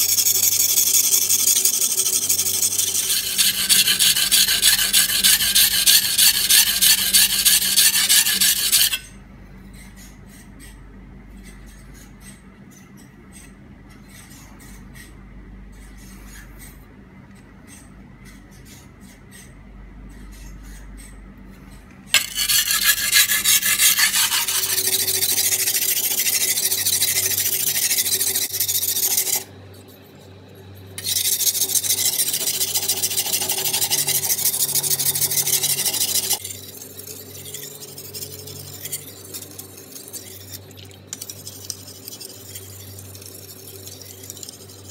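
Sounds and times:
blade rasping on sharpening stone: 0.0s - 9.1s, 22.2s - 29.5s, 31.0s - 40.6s.

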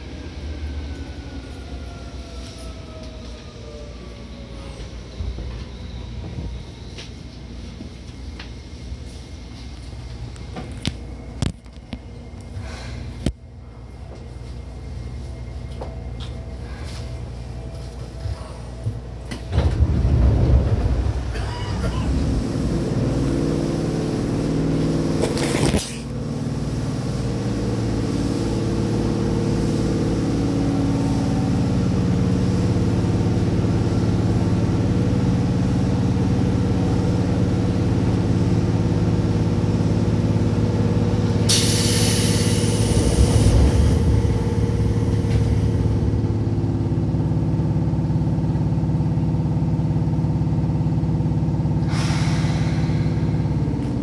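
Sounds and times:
electric train running hum: 0.0s - 54.0s.

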